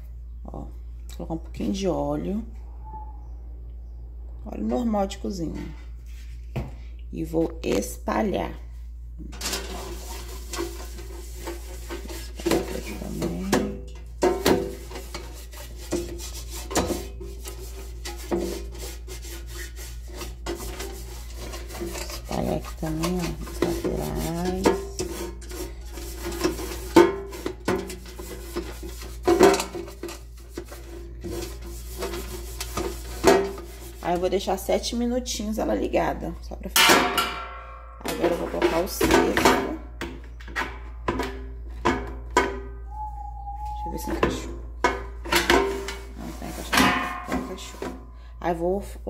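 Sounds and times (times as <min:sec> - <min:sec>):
brush tapping against pan: 0:09.3 - 0:34.5, 0:44.0 - 0:48.1
pastry brush scraping a pan: 0:09.4 - 0:36.0, 0:43.8 - 0:48.3.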